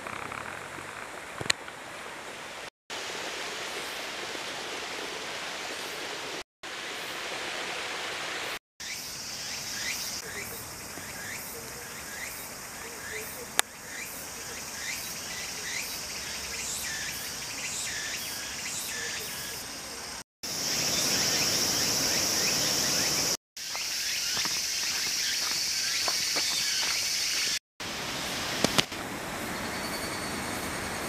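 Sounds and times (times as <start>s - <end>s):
high-pitched insect chorus: 8.8s - 28.3s, 29.3s - 31.0s
short insect chirps: 13.8s - 27.6s, 29.4s - 31.0s.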